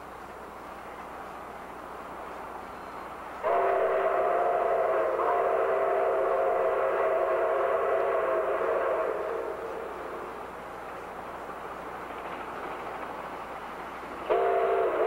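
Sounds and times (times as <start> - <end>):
train rumbling: 0.0 - 15.0
steam locomotive chime whistle: 2.6 - 10.5, 14.2 - 15.0.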